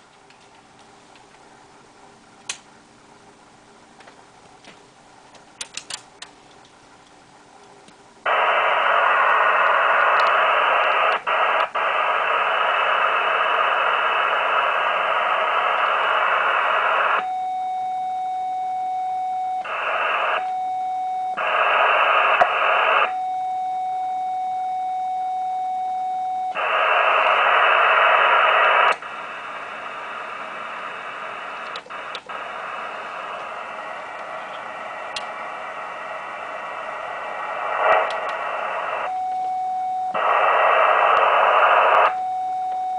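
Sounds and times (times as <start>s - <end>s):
shortwave receiver hiss: 0.0s - 17.9s, 19.5s - 20.7s, 21.3s - 23.2s, 26.5s - 42.9s
steady single-pitch tone: 23.1s - 26.6s.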